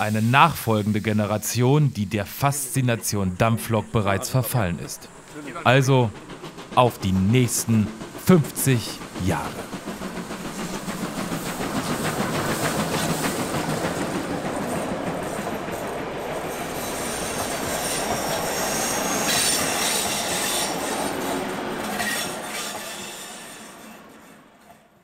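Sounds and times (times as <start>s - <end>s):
train running on rails: 0.0s - 25.0s
high-pitched wheel squeal: 16.7s - 21.2s.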